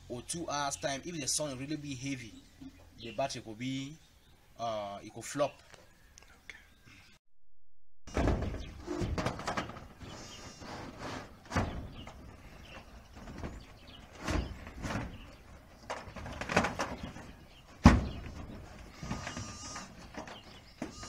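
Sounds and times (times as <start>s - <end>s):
metal roofing sheets clanking: 8.1s - 21.0s.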